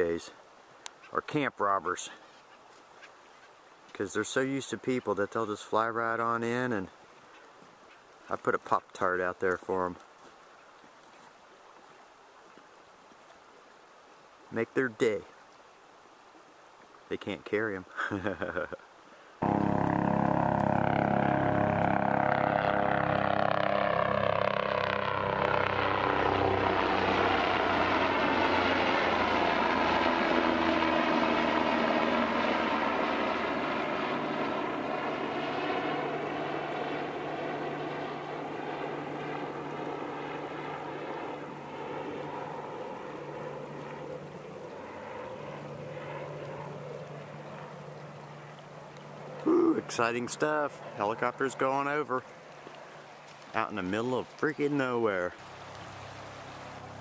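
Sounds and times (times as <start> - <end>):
helicopter rotor and engine: 19.4 - 52.6, 55.8 - 57.0.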